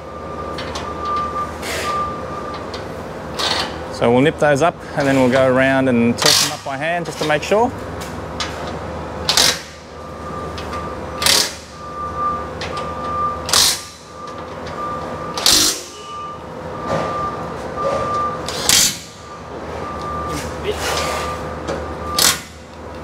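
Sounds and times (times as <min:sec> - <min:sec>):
impact wrench hammering bolts: 0:09.3 - 0:09.8, 0:15.4 - 0:16.0.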